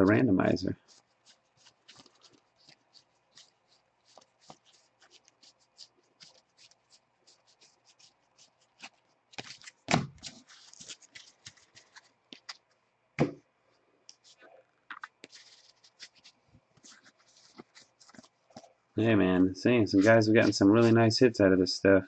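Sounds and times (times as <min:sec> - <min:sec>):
cards being flipped through: 0:00.9 - 0:13.3, 0:14.1 - 0:18.7, 0:20.0 - 0:21.0.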